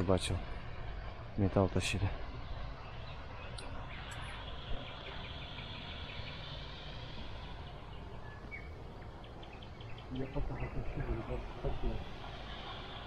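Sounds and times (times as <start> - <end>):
ship diesel engine drone: 0.0 - 13.0
small birds chirping: 0.0 - 13.0.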